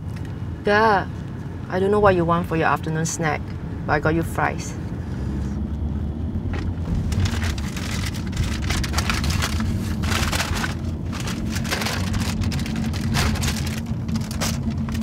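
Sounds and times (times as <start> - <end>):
car cabin road rumble: 0.0 - 15.0
paper bag rustling: 6.7 - 15.0.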